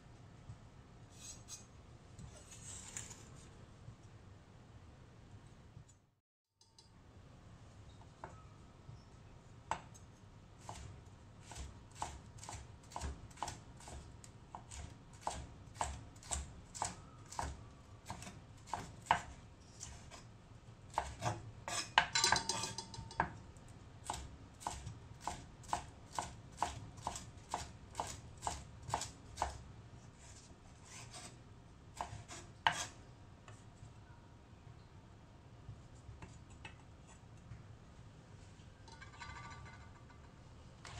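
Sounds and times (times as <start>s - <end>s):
knife slicing pepper on wooden board: 10.6s - 20.2s, 20.9s - 21.9s, 32.0s - 33.0s.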